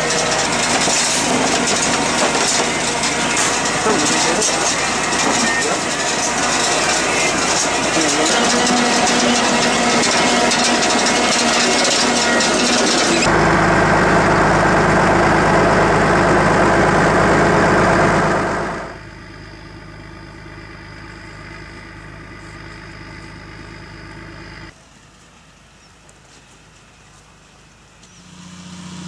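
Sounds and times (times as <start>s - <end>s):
harvester webs rattling: 0.0s - 13.3s
tractor engine drone: 0.0s - 25.6s, 26.6s - 29.0s.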